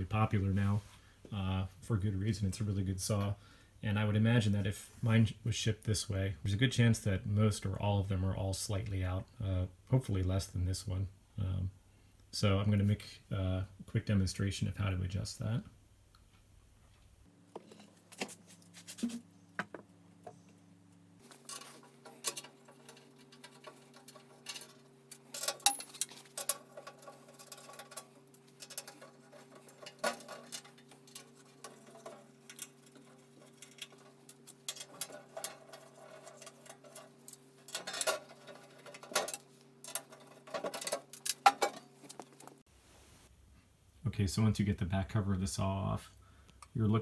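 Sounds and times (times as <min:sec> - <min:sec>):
faint steady hum: 0:00.0 - 0:47.0
screws clicking and rattling on metal: 0:21.4 - 0:41.8.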